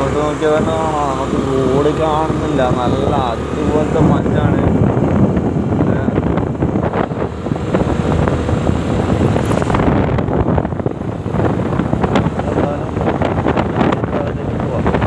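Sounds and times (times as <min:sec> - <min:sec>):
motorbike engine: 0:00.0 - 0:15.0
tyres on road: 0:00.0 - 0:15.0
wind buffeting microphone: 0:00.0 - 0:15.0.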